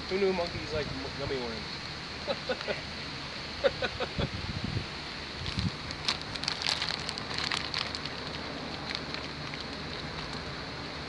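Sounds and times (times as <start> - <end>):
steady high hiss: 0.0 - 11.0
light crackles and ticks: 5.9 - 10.5.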